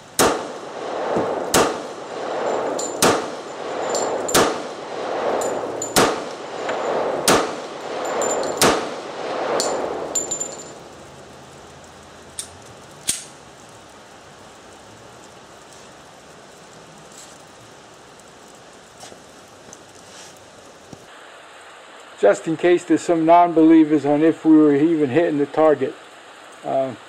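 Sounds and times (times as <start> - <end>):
pistol shots echoing: 0.2 - 10.7
metallic clicks: 11.8 - 13.4.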